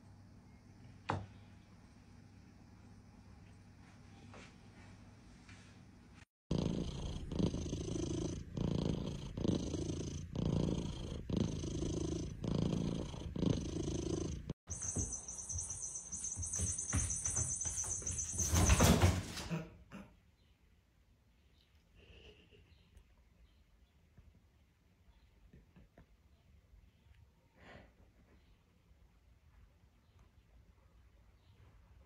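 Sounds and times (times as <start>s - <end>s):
cat purring: 6.5s - 15.4s.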